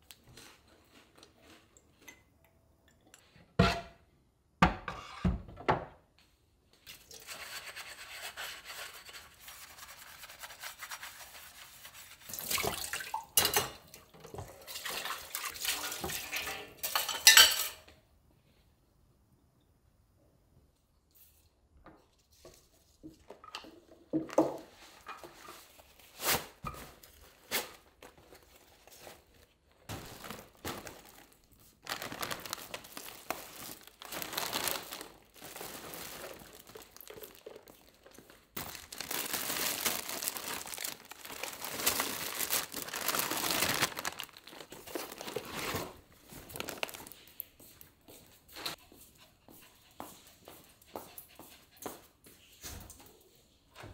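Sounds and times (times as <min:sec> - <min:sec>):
plastic bags crinkling: 0:27.0 - 0:47.2.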